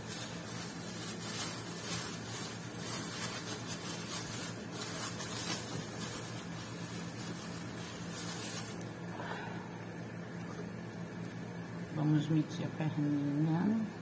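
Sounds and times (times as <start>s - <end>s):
plastic bag crinkling: 0.0s - 9.0s
low hum: 8.1s - 12.0s.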